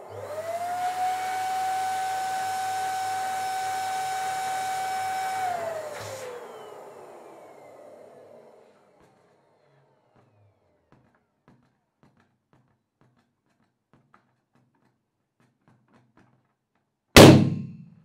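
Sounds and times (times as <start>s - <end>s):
balloon bursting: 17.2s - 17.8s.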